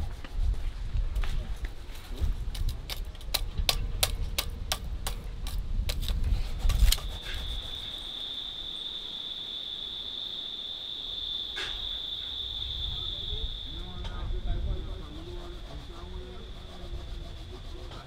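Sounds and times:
insect trill: 5.5 - 18.0.

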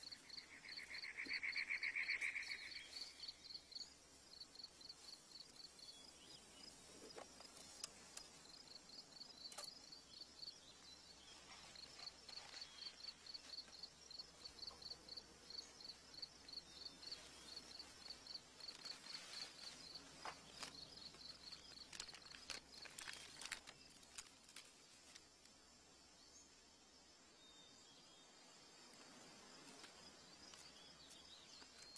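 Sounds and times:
faint outdoor hiss: 0.0 - 31.9
insect chirping: 0.0 - 31.9
tin box and paper rustling: 20.6 - 24.7.

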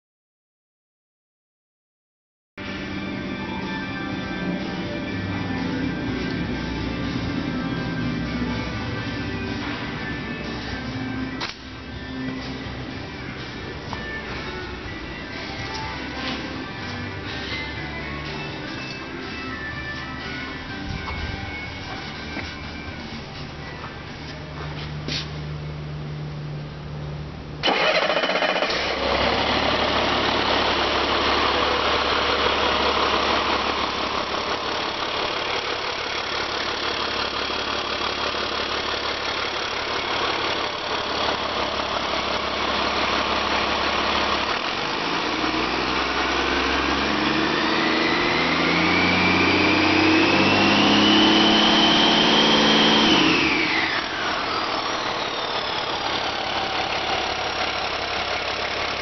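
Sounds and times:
diesel engine idling and revving: 2.6 - 59.0.

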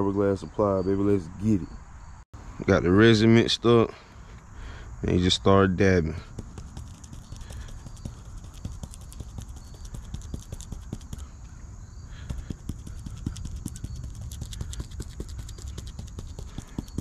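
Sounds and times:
soft taps and pats: 6.3 - 11.3, 12.2 - 17.0.

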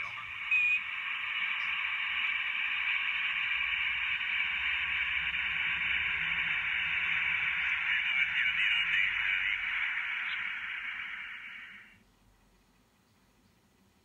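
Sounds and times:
radio static hiss: 0.0 - 12.0.

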